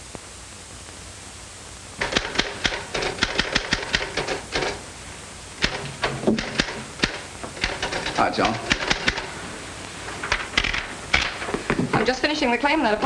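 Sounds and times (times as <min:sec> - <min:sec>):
faint steady hiss: 0:00.0 - 0:13.0
typewriter key strikes: 0:02.0 - 0:04.8, 0:05.6 - 0:09.3.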